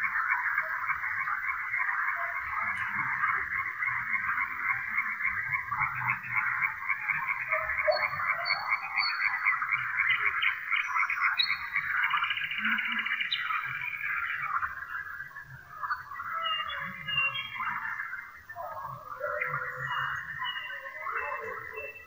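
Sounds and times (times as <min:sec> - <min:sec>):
frogs croaking: 0:00.0 - 0:22.0
nightingale whistling: 0:18.6 - 0:22.0.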